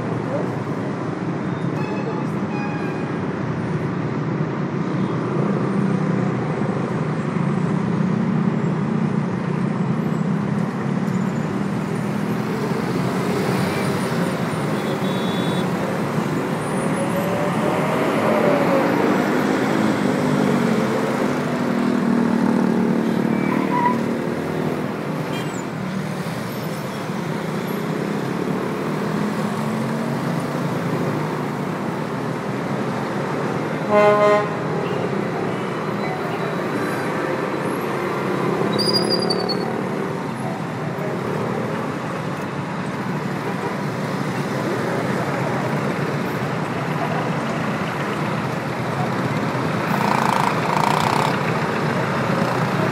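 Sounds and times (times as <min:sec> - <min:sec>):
car engines rumbling: 0:00.0 - 0:52.9
passing vehicle engine: 0:15.7 - 0:26.5, 0:39.6 - 0:52.9.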